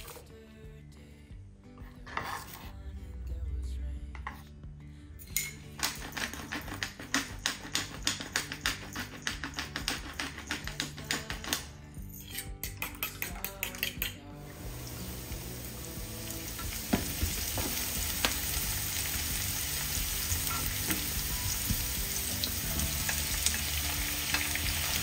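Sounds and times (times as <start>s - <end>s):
soft background music: 0.0s - 25.0s
whisk clicking against bowl: 5.8s - 11.7s.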